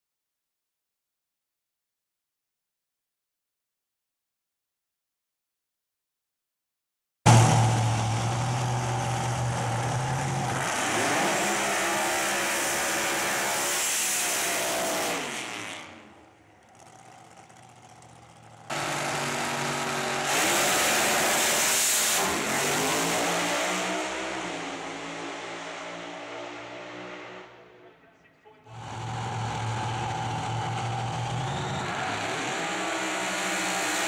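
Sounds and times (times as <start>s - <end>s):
drag car engine revving: 7.3s - 27.7s, 28.6s - 34.0s.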